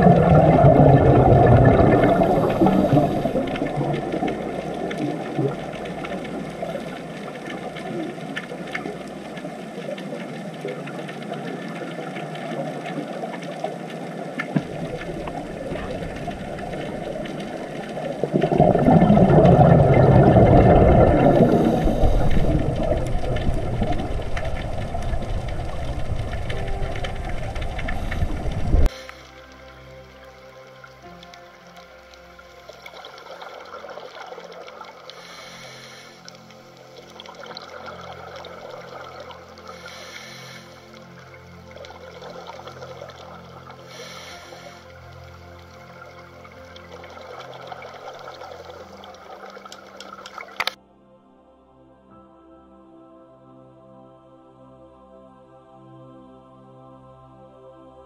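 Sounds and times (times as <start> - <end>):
bubbling surges of exhaled bubbles: 0.0 - 28.9
underwater hiss and rumble: 0.0 - 50.8.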